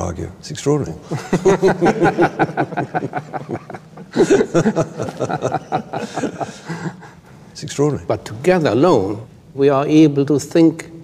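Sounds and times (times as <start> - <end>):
men laughing: 1.1 - 7.3.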